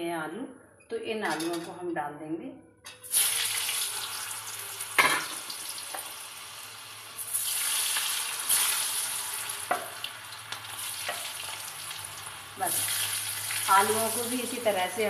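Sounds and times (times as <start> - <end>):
potatoes sizzling in hot oil: 3.0 - 15.0.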